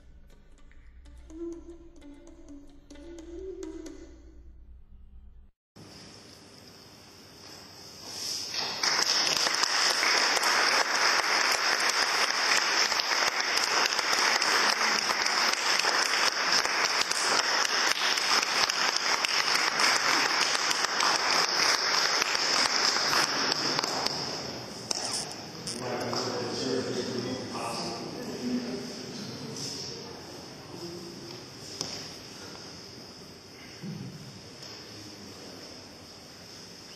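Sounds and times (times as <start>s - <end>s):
audience applauding: 8.5s - 27.1s.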